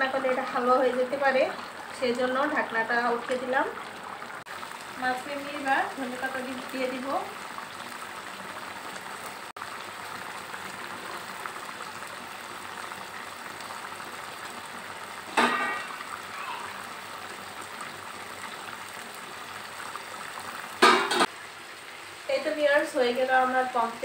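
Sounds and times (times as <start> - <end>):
curry bubbling in a pan: 0.0 - 24.0.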